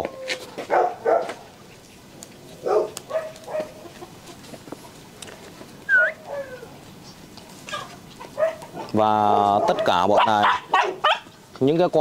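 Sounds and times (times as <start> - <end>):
puppy yelping: 0.0 - 1.4, 2.6 - 3.9, 5.9 - 6.8, 7.7 - 11.3
puppies whining: 5.8 - 11.3.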